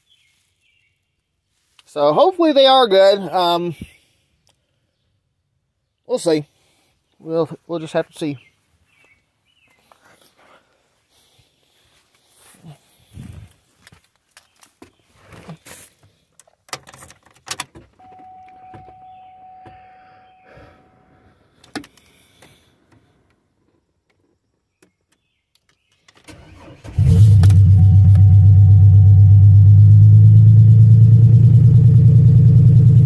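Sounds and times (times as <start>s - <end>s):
steady tone: 18.0s - 21.2s, 27.6s - 30.5s
car engine cranking and starting: 26.2s - 33.0s.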